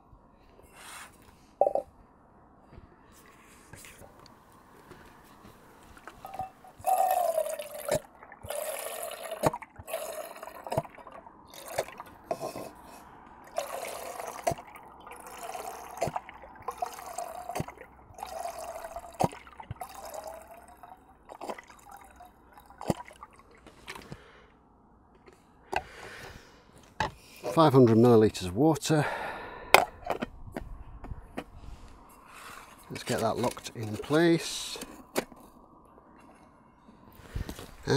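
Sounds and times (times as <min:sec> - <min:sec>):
water pouring into a pot: 0:06.4 - 0:12.1, 0:13.5 - 0:23.3.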